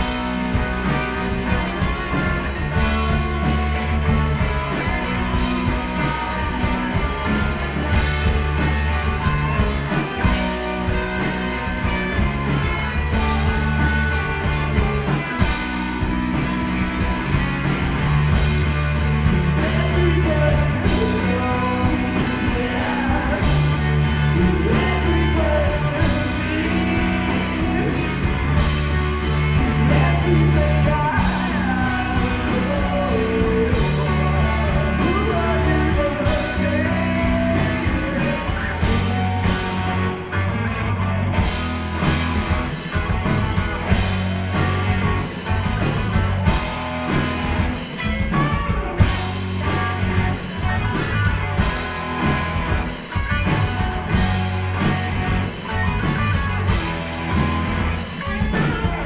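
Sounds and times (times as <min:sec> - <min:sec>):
bass guitar low notes: 0:00.0 - 0:59.0
rock band playing live: 0:00.0 - 0:59.0.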